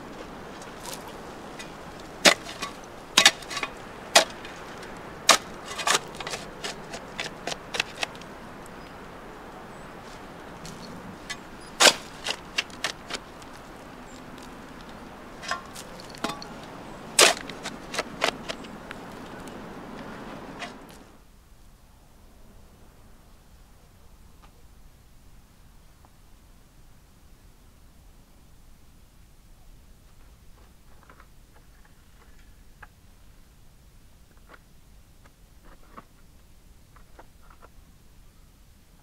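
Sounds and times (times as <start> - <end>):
shovel scraping stony soil: 0.5 - 9.0, 10.0 - 19.6, 20.5 - 21.0.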